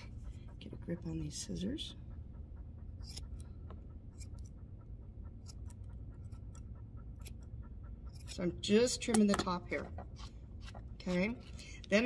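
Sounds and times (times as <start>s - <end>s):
low steady hum: 0.0s - 12.0s
scissors snipping fur: 3.0s - 3.4s, 4.2s - 4.5s, 5.4s - 6.6s, 8.1s - 12.0s.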